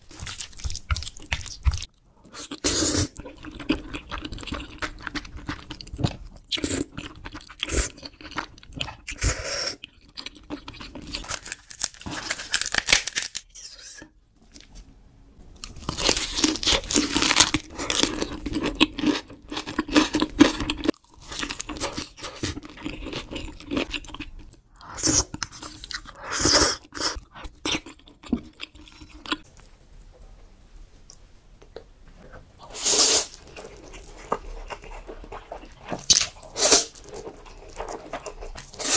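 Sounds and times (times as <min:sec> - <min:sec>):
crunchy chewing: 0:32.6 - 0:38.9.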